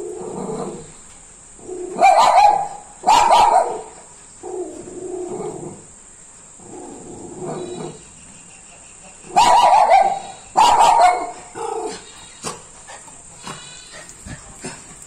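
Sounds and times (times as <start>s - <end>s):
dog barking: 2.0s - 4.0s, 9.3s - 12.6s.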